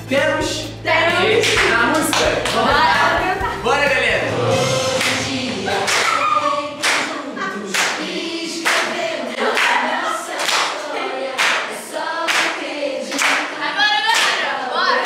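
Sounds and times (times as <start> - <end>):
group singing pop song: 0.3 - 15.0
hands clapping on the beat: 1.4 - 3.4, 5.0 - 6.2, 6.8 - 7.1, 7.7 - 9.8, 10.4 - 14.4.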